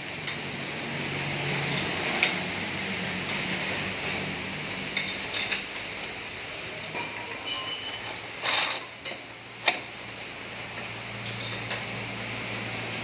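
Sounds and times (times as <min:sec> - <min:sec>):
sharp metal clinks: 0:06.8 - 0:09.0.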